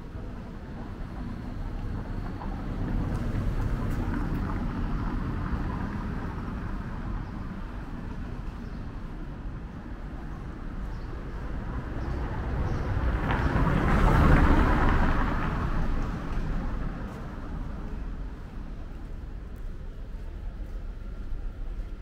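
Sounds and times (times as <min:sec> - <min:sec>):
street background noise: 0:00.0 - 0:22.0.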